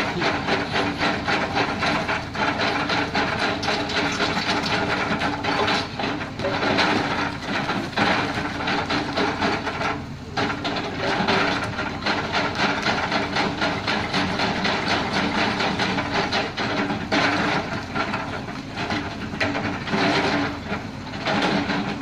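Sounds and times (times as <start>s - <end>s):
clatter of stones: 0.0s - 22.0s
excavator engine running: 0.0s - 22.0s.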